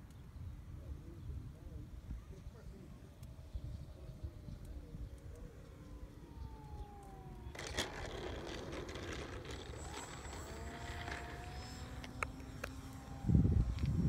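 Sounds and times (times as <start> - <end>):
model airplane motor whining: 5.6 - 14.0.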